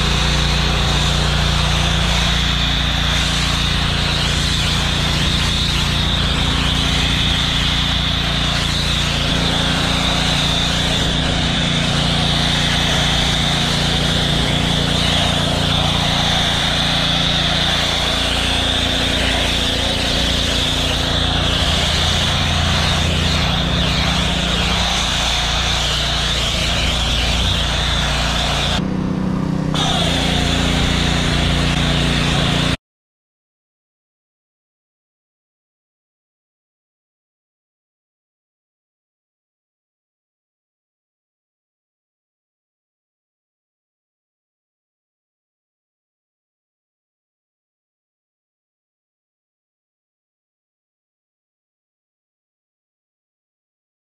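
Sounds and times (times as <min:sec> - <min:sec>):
foam cannon spraying hiss: 0:00.0 - 0:28.8, 0:29.8 - 0:32.8
pressure washer running: 0:00.0 - 0:32.8.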